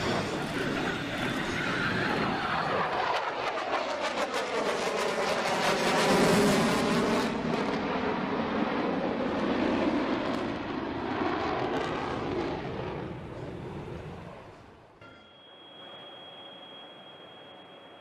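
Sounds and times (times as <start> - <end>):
jet roar overhead: 0.0 - 18.0.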